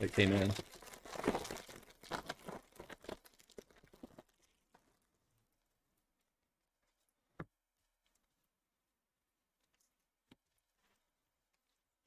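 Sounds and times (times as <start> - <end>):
foil wrapper crinkling: 0.0 - 5.0.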